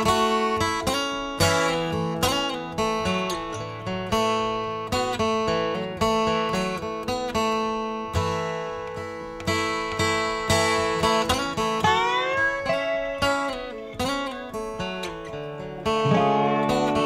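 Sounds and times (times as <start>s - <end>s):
acoustic guitar picked and strummed: 0.0s - 17.0s.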